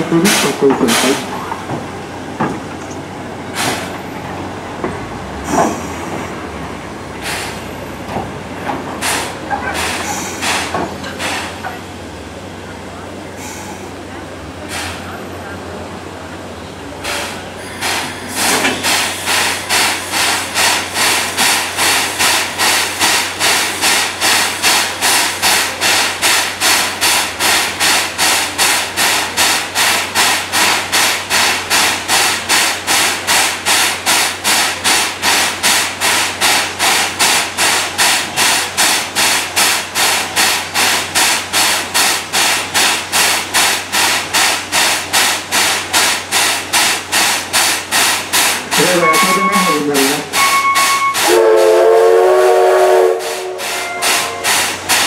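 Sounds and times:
steam locomotive rhythmic hissing: 0.0s - 4.0s, 7.0s - 55.0s.

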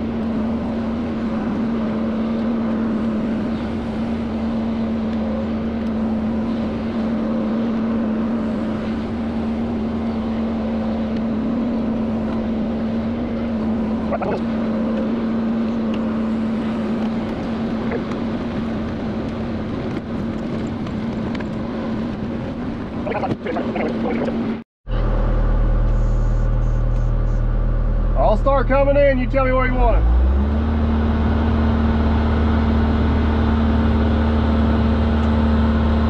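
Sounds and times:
excavator engine and hydraulics: 0.0s - 36.0s.

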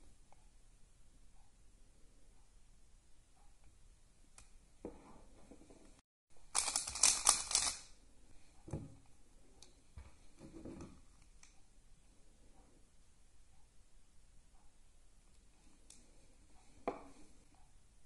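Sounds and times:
handling clicks and rustles: 5.6s - 7.9s
speed cube clicking and clacking: 6.4s - 7.9s.

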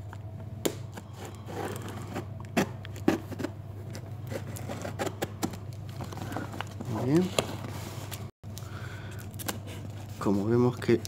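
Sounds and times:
cardboard scraping: 1.0s - 8.3s.

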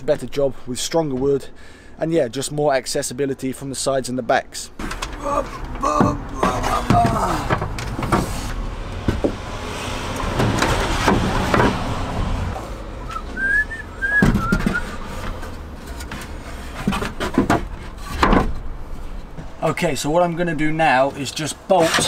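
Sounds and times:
passing vehicle hiss: 8.2s - 14.1s.

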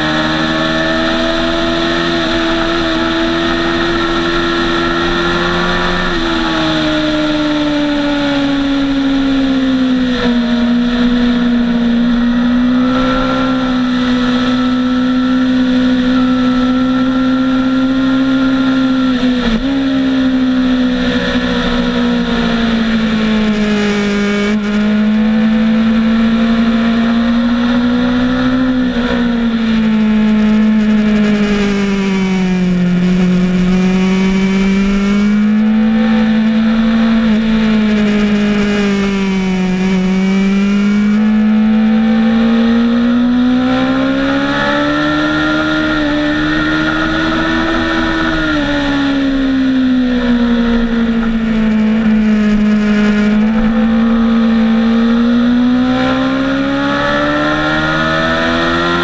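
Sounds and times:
motorcycle engine at high revs: 0.0s - 59.0s.

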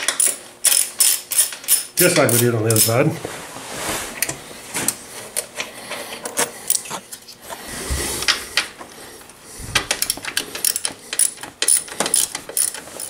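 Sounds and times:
hand tools clicking and rattling: 0.0s - 3.1s, 9.7s - 13.0s.

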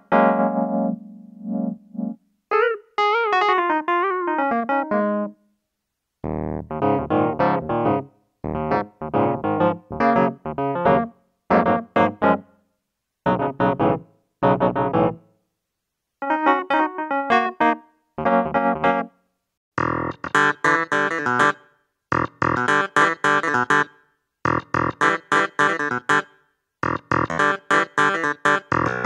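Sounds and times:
electric piano playing: 0.0s - 5.4s, 6.2s - 12.4s, 13.3s - 15.2s, 16.2s - 19.1s, 19.8s - 23.9s, 26.8s - 29.0s.

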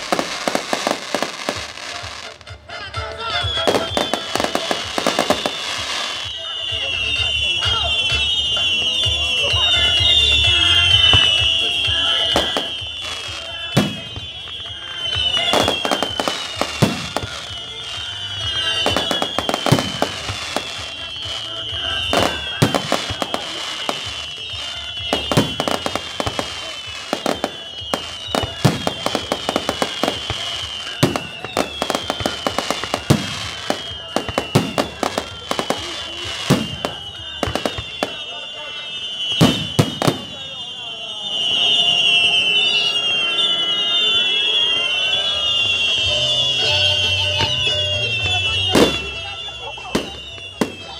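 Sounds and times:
fireworks bursting with bangs: 0.0s - 50.9s
high falling whistle tone: 3.3s - 50.9s.

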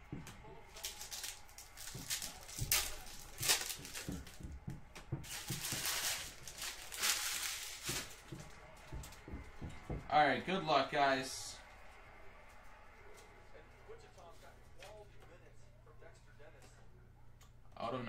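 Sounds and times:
wrappers crinkling and rustling: 0.5s - 4.6s, 5.2s - 9.2s
card packs being torn open: 0.6s - 4.4s, 5.2s - 8.4s.

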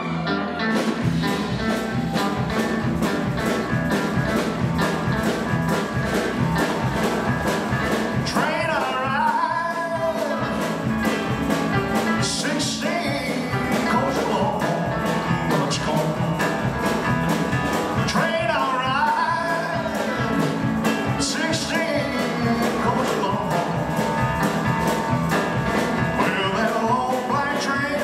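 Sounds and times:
rock band playing: 0.0s - 28.0s
man singing: 8.1s - 10.9s, 11.8s - 16.9s, 17.8s - 28.0s.

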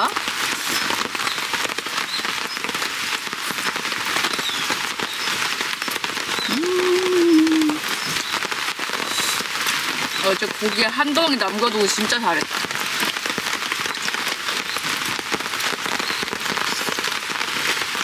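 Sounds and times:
rain falling on a tarp: 0.0s - 18.0s
person humming while eating: 6.5s - 7.8s.

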